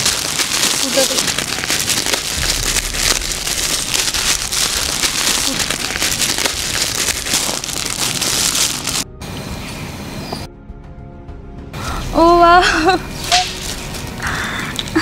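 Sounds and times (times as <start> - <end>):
gift wrap crinkling: 0.0 - 9.0, 13.2 - 15.0.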